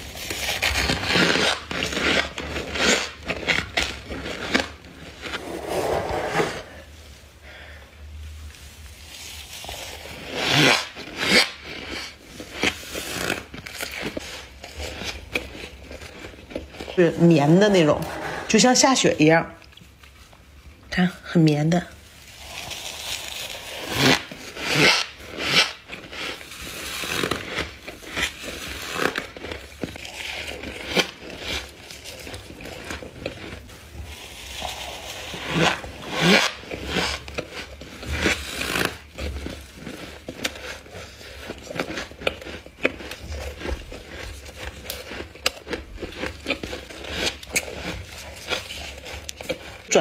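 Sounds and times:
person crunching frost: 0.0s - 6.9s, 22.2s - 50.0s.

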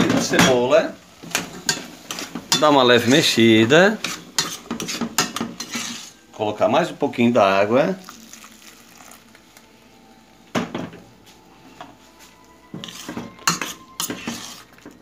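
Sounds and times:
spoon clinking and scraping pot: 1.2s - 3.4s, 4.0s - 6.2s, 11.8s - 15.0s
water poured into a pot: 8.0s - 9.7s.

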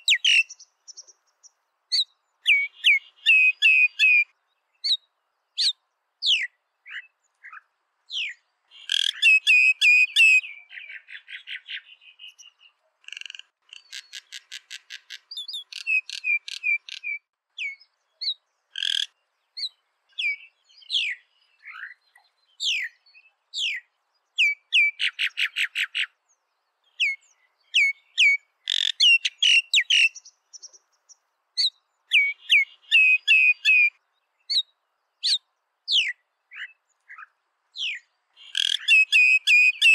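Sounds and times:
bird singing whistles and rattles: 8.2s - 10.5s, 13.7s - 21.2s, 37.8s - 39.9s.

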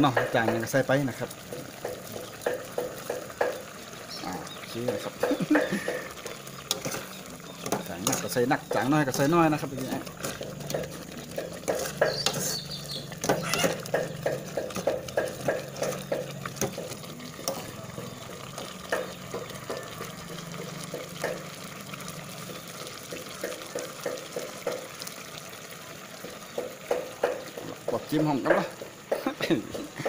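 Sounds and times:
metal spoon scraping a pot: 6.2s - 8.4s.

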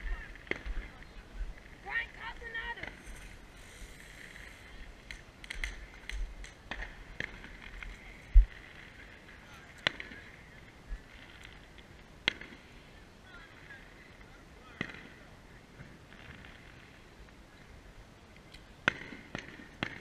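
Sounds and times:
faint voices: 0.0s - 20.0s
firecrackers popping: 0.0s - 20.0s.

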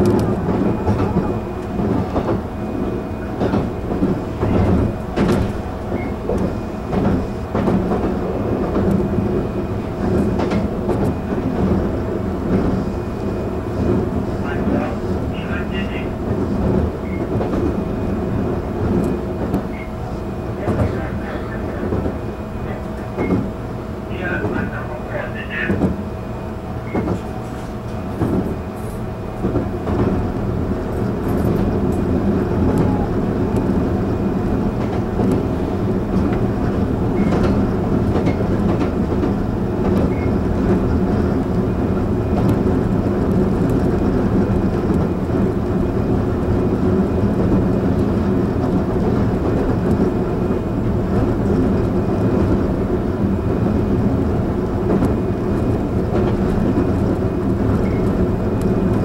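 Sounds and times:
electric train hum and rail noise: 0.0s - 59.0s.

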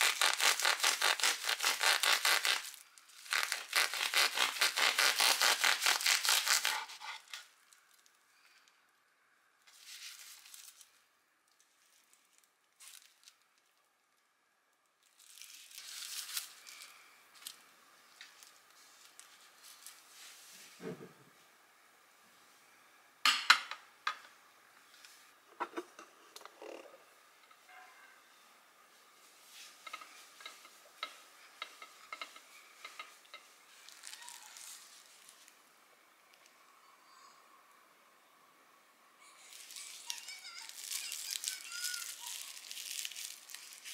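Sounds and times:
plastic cling wrap crinkling: 0.0s - 8.6s, 9.7s - 14.1s, 15.0s - 20.4s, 31.7s - 35.6s, 39.3s - 43.9s.

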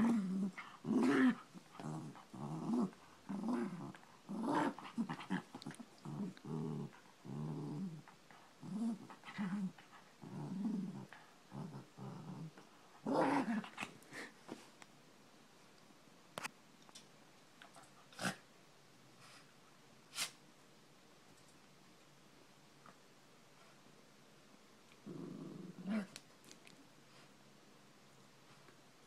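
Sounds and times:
small dog play-growling: 0.0s - 14.3s, 17.8s - 18.4s, 24.9s - 26.6s.

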